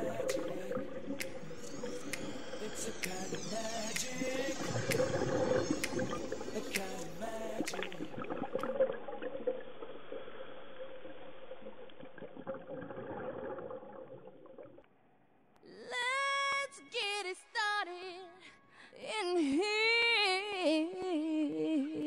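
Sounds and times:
underwater gurgling: 0:00.0 - 0:14.8.

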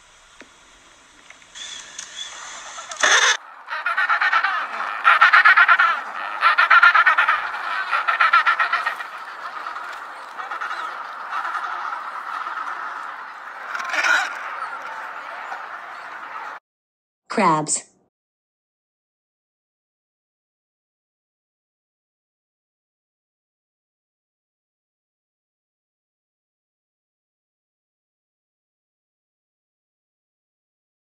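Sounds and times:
penguins braying: 0:01.6 - 0:16.6.

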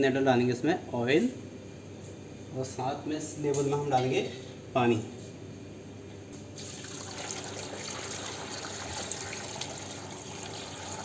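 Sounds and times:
water pouring into a pot: 0:06.6 - 0:11.0.

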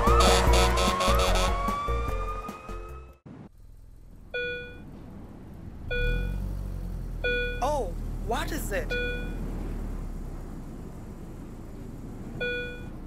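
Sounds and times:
background music: 0:00.0 - 0:03.2.

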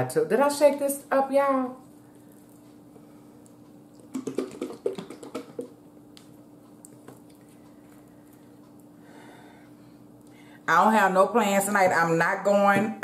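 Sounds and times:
plastic bottle shaken sloshing: 0:04.1 - 0:05.7.

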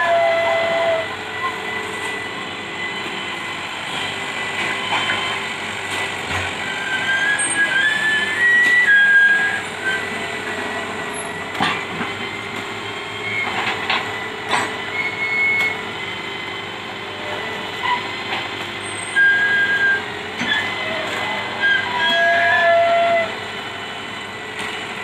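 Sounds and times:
excavator running: 0:00.0 - 0:25.0
high-pitched squeals: 0:18.8 - 0:23.4.

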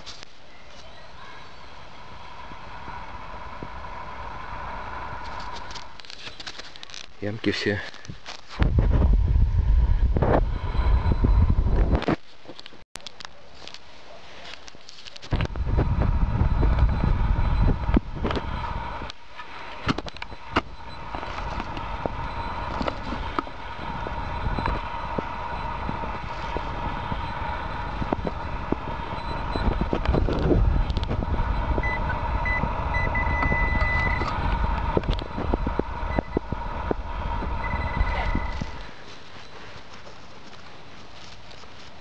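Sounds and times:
metal detector beeping: 0:10.7 - 0:11.5, 0:16.4 - 0:18.7, 0:19.9 - 0:39.8
handling rumble: 0:15.3 - 0:42.0
metal detector tone: 0:20.0 - 0:39.6.

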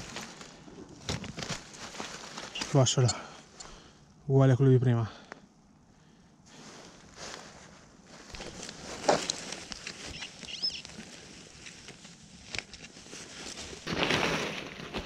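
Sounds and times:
dry leaves rustling and crackling: 0:00.0 - 0:03.1, 0:06.6 - 0:15.0.

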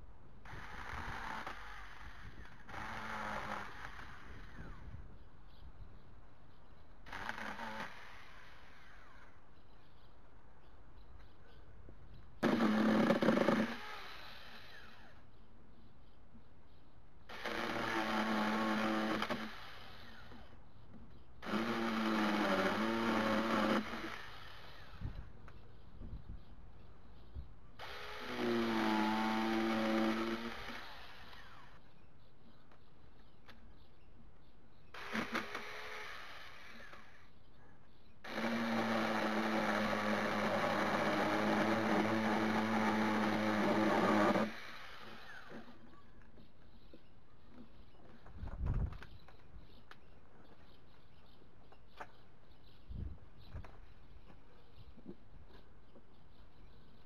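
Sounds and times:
electric chainsaw cutting stems: 0:00.4 - 0:04.8, 0:07.0 - 0:09.3, 0:12.4 - 0:15.2, 0:17.3 - 0:20.5, 0:21.4 - 0:25.2, 0:27.8 - 0:31.8, 0:34.9 - 0:37.2, 0:38.2 - 0:45.8.

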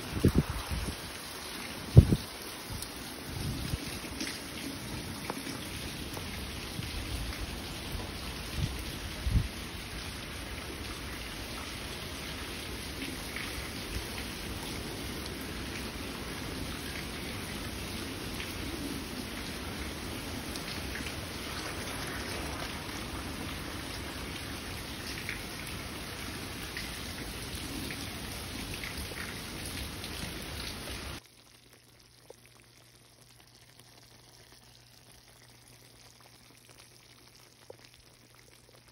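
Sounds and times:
chutney bubbling and sputtering: 0:31.2 - 0:38.9.

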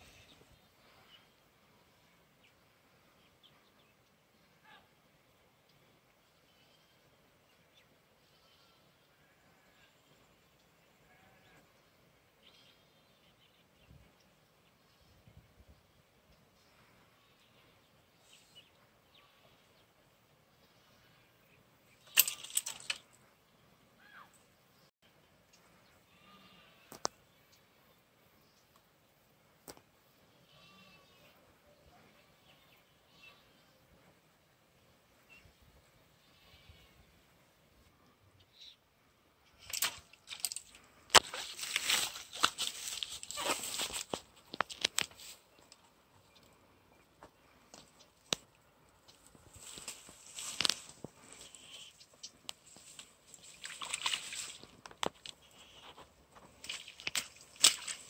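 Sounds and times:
tall grass rustling and crunching: 0:41.1 - 0:45.5, 0:49.2 - 0:58.0.

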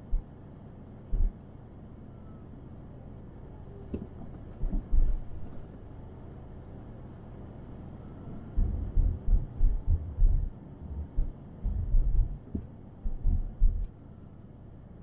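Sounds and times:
low thuds: 0:01.1 - 0:01.4, 0:08.6 - 0:13.9.

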